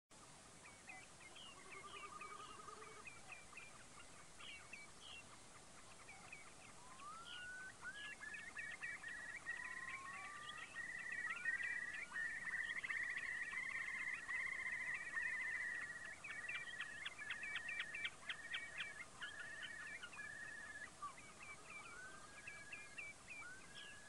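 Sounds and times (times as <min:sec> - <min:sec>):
wading birds calling: 0:00.6 - 0:24.0
rising whistled bird calls: 0:00.7 - 0:05.2, 0:06.0 - 0:24.0.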